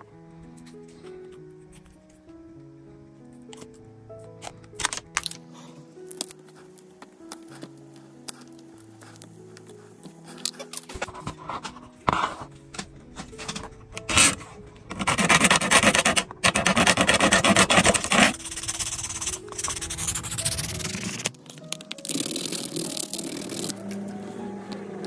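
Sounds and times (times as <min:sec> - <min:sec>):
background music of held notes: 0:00.0 - 0:25.0
rubbing and rasping handwork: 0:06.1 - 0:25.0.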